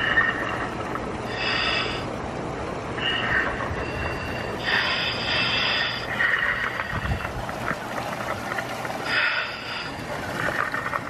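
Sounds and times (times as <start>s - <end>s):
air hissing from diving helmet: 0.0s - 2.1s, 3.0s - 7.4s, 9.0s - 10.0s.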